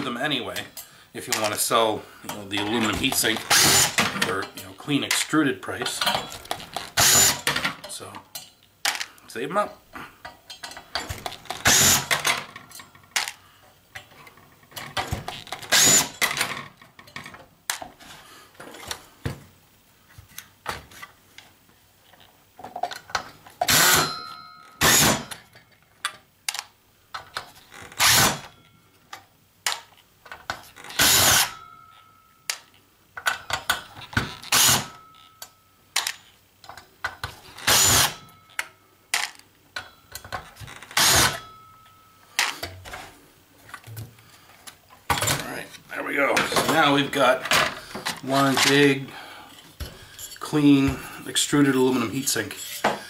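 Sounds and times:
clicks of parts handled: 2.3s - 9.2s, 25.3s - 27.6s
cordless drill spinning: 3.5s - 4.0s, 6.9s - 7.5s, 11.6s - 12.1s, 15.6s - 16.2s, 31.0s - 31.5s, 34.5s - 34.9s, 37.6s - 38.2s.

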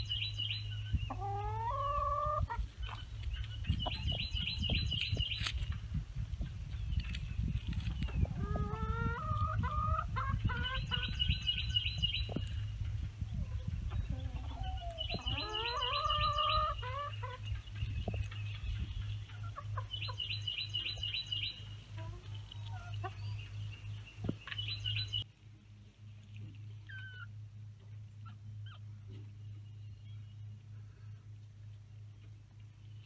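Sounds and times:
chickens clucking: 0.4s - 25.2s.

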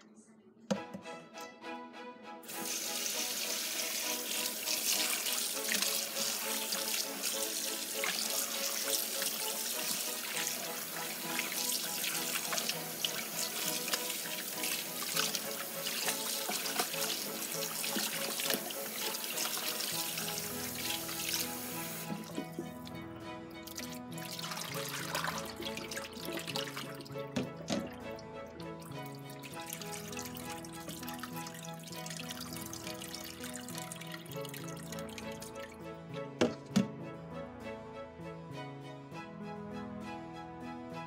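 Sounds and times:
hands washing chicken splashing: 2.5s - 22.9s, 23.7s - 35.6s.

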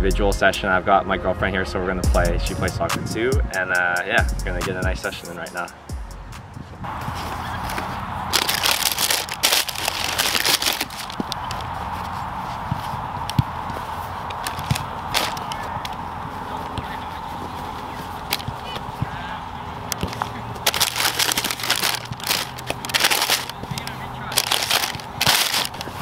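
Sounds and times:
cardboard box and paper rustling: 7.0s - 12.9s, 13.8s - 18.8s, 20.0s - 26.0s.

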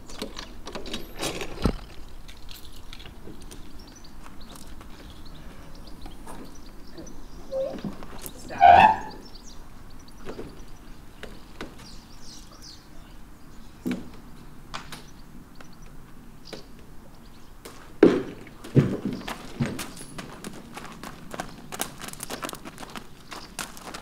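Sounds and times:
metal ramp creaking: 7.5s - 9.2s
hooves thudding on floor: 17.7s - 24.0s.

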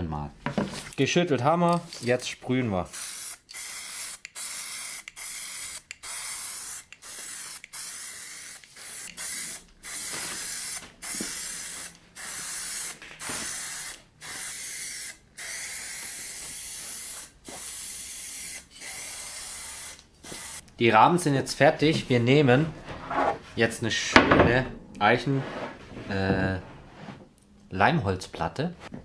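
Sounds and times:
spray paint can hissing: 2.9s - 20.6s.

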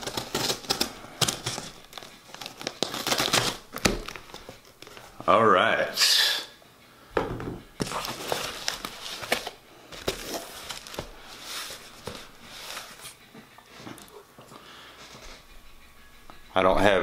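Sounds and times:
packing tape tearing: 0.0s - 5.1s, 7.8s - 13.2s
cardboard rustling and scraping: 0.0s - 5.2s, 7.8s - 14.0s.

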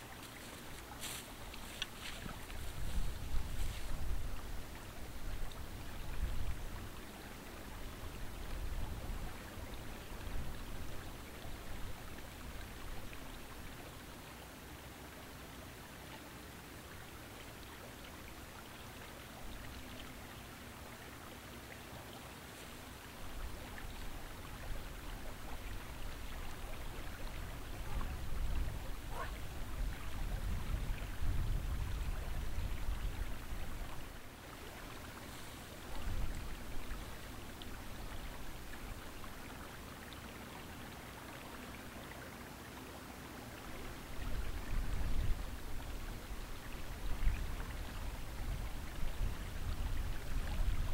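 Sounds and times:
wind rumbling on microphone: 0.0s - 7.0s, 7.6s - 13.4s, 23.1s - 39.7s, 43.6s - 50.9s
creek water running: 0.0s - 50.9s.

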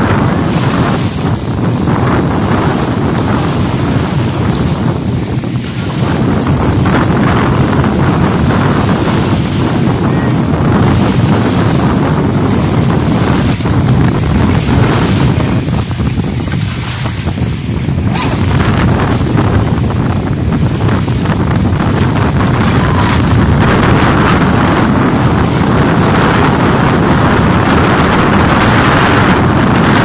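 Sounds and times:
wind buffeting microphone: 0.0s - 30.0s
small waves lapping: 0.4s - 28.8s
model speedboat motor: 17.9s - 30.0s.

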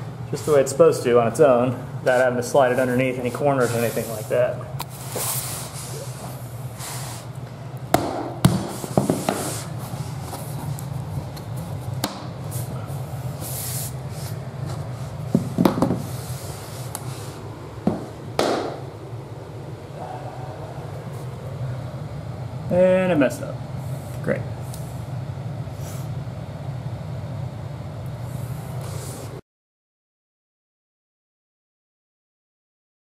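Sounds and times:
steady low hum: 0.0s - 29.4s
brief brushing sounds: 2.1s - 6.2s.

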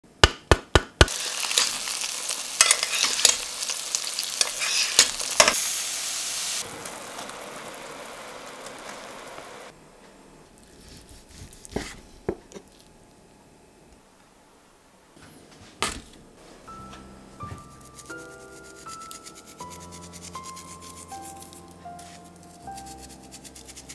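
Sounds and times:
food sizzling in a hot pan: 1.1s - 9.7s.

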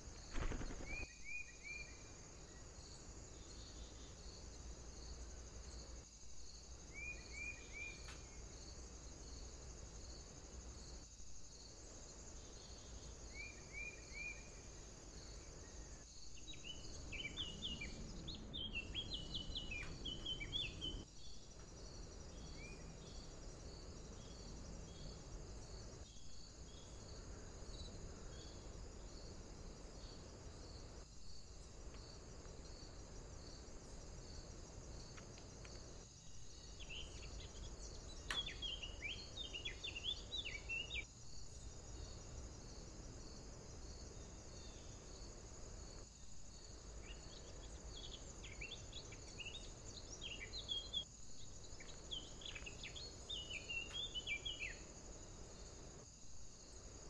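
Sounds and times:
songbirds twittering: 0.0s - 4.5s, 12.3s - 42.2s, 46.6s - 55.6s
low background hiss: 0.0s - 57.0s.

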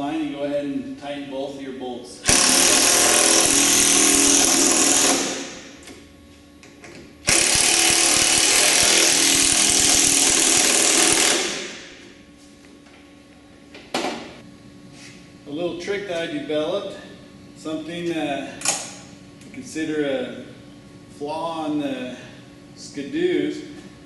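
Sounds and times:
cordless drill driving bolts: 2.3s - 5.5s, 7.3s - 11.8s.

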